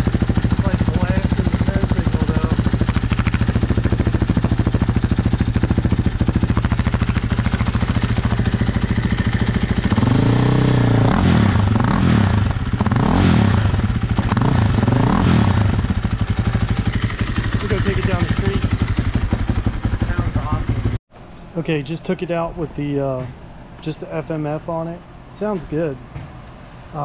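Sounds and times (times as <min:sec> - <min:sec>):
motorcycle engine idling and revving: 0:00.0 - 0:21.0.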